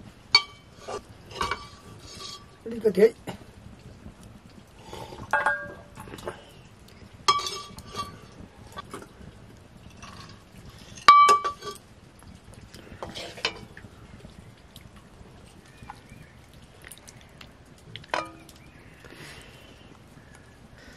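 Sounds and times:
steel ladle clinking on metal: 0.3s - 0.7s, 5.3s - 5.9s, 7.3s - 8.2s, 11.0s - 11.8s.

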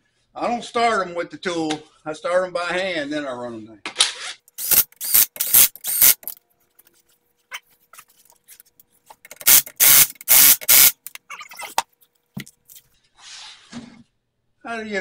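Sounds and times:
impact wrench bursts: 4.6s - 6.3s, 9.3s - 11.1s
soft scraping: 12.8s - 14.1s.

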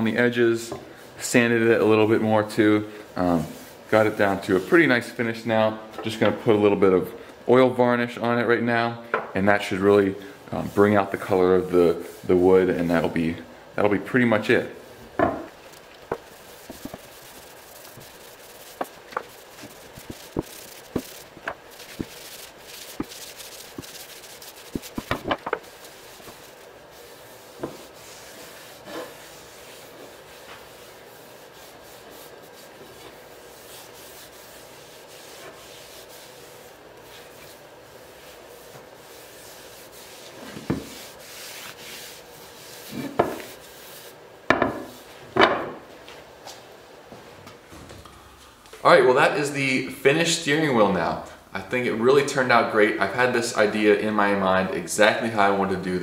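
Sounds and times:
cloth rag rubbing wood: 10.5s - 13.2s, 15.5s - 45.2s.

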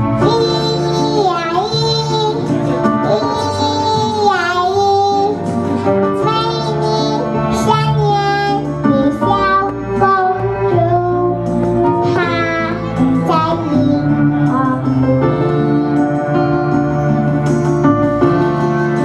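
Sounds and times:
girl singing into a microphone: 0.0s - 16.6s
instrumental accompaniment: 0.0s - 19.0s.

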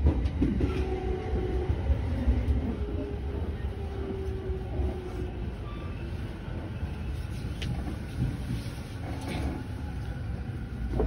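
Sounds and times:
train rumble: 0.0s - 11.0s.

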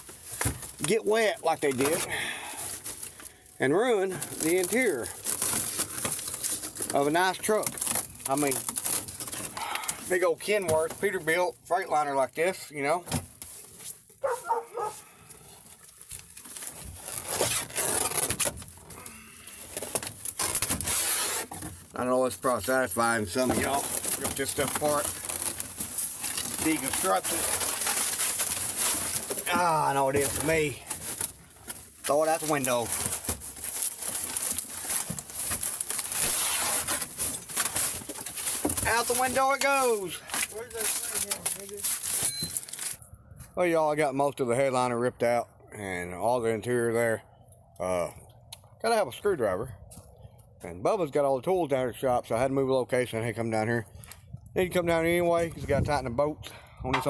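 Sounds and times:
rustling and scraping: 0.0s - 11.6s, 12.4s - 43.6s
dog whining: 14.2s - 15.0s.

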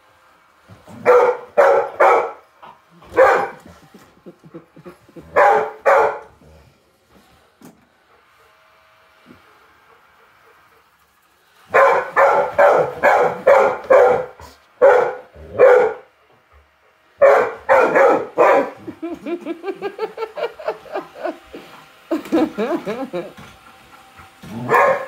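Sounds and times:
dog barking: 1.0s - 2.4s, 3.1s - 3.6s, 5.3s - 6.3s, 11.7s - 16.1s, 17.2s - 18.8s, 24.5s - 25.0s.

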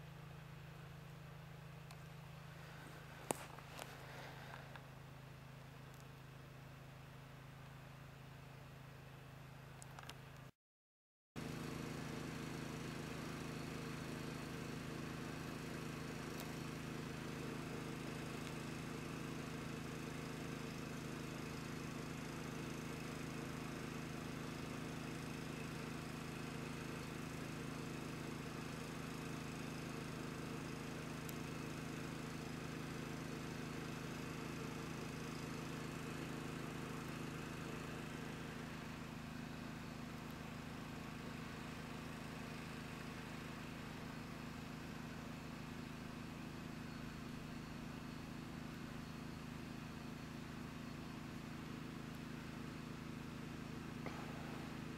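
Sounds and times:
low mechanical hum: 0.0s - 10.5s, 11.4s - 54.9s.

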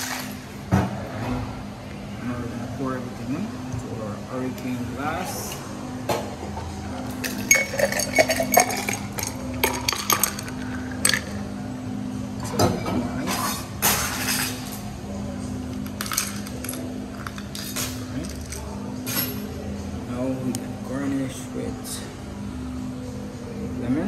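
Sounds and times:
steady low hum: 0.0s - 24.0s
drink being poured: 7.0s - 11.4s
ice cubes clinking in shaker: 7.2s - 11.4s, 15.9s - 18.6s.

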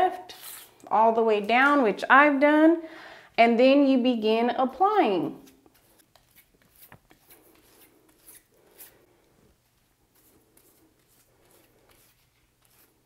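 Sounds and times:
brush strokes on hair: 5.7s - 13.0s.

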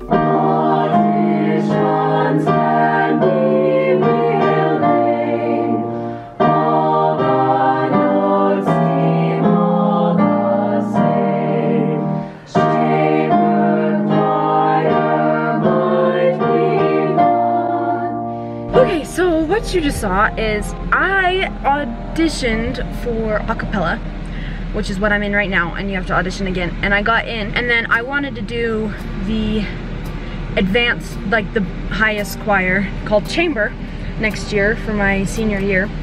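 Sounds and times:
women singing in harmony: 0.0s - 24.8s.

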